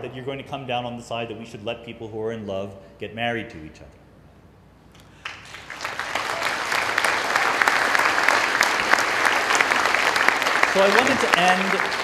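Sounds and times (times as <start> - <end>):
audience applause: 5.2 - 12.0.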